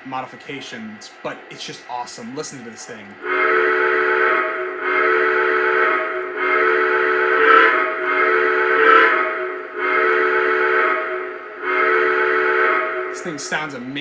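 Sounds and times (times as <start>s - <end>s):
chime steam whistle blasts: 3.2s - 14.0s.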